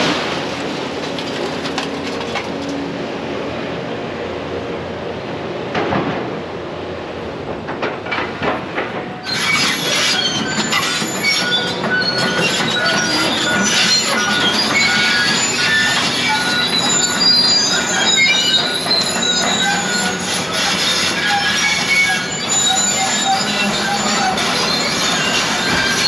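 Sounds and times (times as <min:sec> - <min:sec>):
high-pitched metal squeals: 0:09.2 - 0:26.0.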